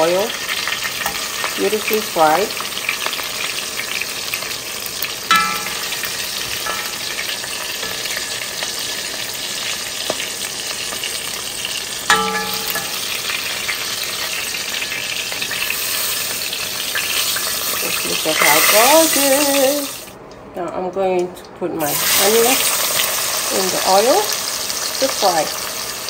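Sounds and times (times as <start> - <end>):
oil sizzling in a pot: 0.0 - 20.2, 21.8 - 26.0
utensil clinking against pot: 5.3 - 8.4, 12.1 - 13.2.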